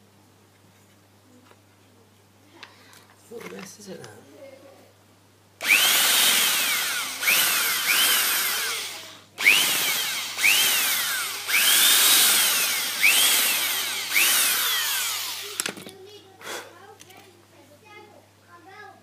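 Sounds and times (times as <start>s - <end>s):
electric drill boring into wood: 5.6s - 15.8s.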